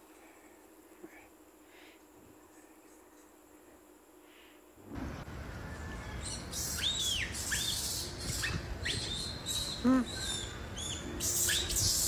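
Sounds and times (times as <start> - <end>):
steady hiss: 0.0 - 12.0
birds chirping: 5.3 - 12.0.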